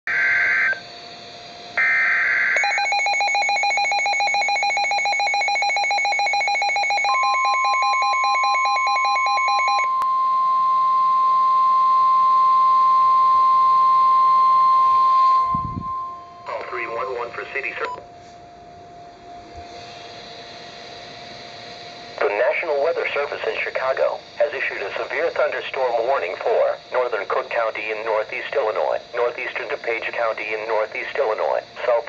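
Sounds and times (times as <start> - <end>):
steady warning alarm tone: 0.0 - 32.0
buzzy data bursts: 21.1 - 32.0.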